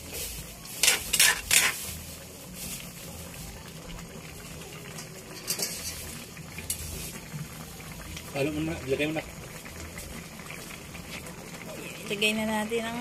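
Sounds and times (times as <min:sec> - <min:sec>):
food simmering: 0:00.0 - 0:13.0
spatula scraping metal wok: 0:00.8 - 0:02.1, 0:05.4 - 0:06.1.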